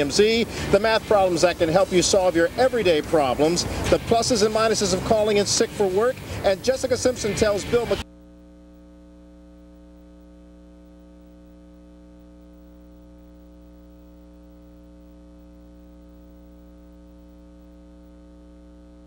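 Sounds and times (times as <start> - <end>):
electrical mains hum: 0.0 - 19.0.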